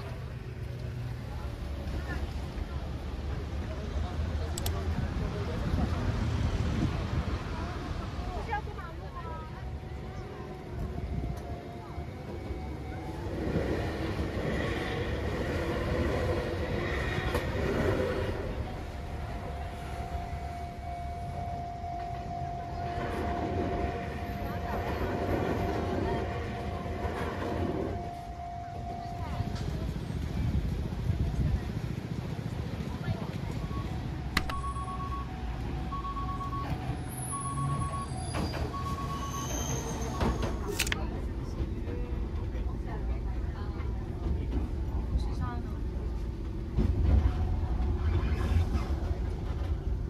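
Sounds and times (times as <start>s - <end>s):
low vehicle rumble: 0.0s - 50.0s
train running: 0.0s - 50.0s
two-tone electronic warning signal: 9.5s - 14.6s, 18.6s - 30.0s, 33.5s - 40.7s.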